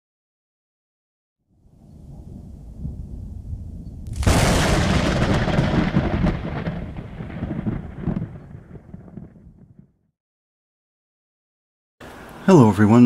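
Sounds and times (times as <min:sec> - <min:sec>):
thunderclap rumbling: 0:01.7 - 0:10.0.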